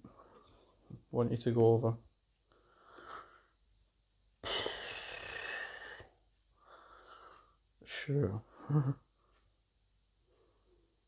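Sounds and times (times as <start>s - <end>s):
person breathing: 2.4s - 3.6s, 4.4s - 7.7s, 10.2s - 11.0s.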